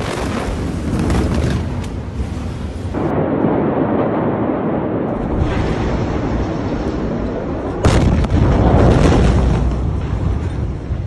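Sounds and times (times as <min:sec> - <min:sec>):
low rumble: 0:00.5 - 0:11.0
explosion boom buffeting microphone: 0:02.9 - 0:11.0.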